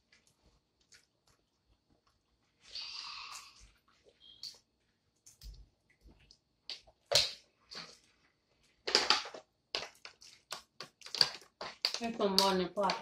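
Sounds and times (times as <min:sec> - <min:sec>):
peanut shells cracking: 0:08.9 - 0:13.0.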